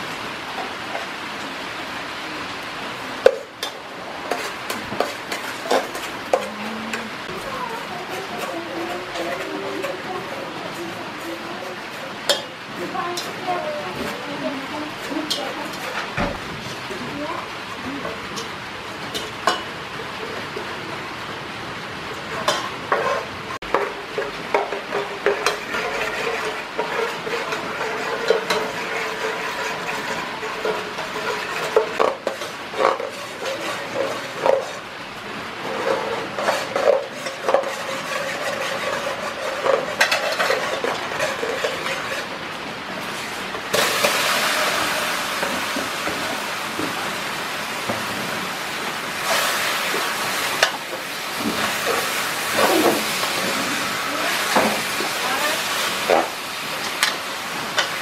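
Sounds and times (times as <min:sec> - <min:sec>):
liquid sizzling: 0:00.0 - 0:58.0
metal ladle scraping a pot: 0:25.2 - 0:34.9, 0:35.6 - 0:42.3.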